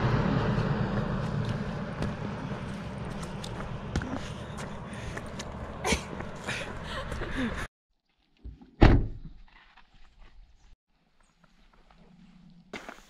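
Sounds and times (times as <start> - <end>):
roadside traffic noise: 0.0 - 7.7.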